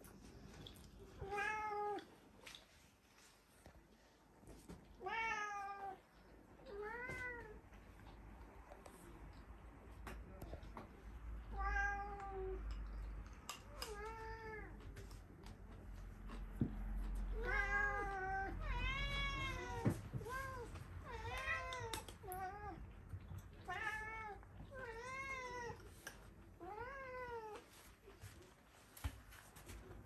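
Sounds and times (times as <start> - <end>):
cat meowing: 17.3 - 22.9.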